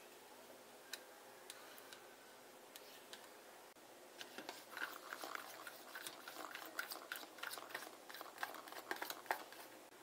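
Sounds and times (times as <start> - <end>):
spoon clicking and scraping plastic: 4.2 - 9.7.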